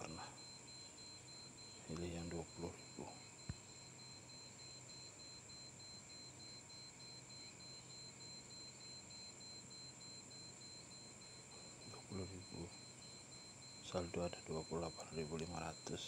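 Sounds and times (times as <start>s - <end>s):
thin high-pitched whine: 0.0s - 16.0s.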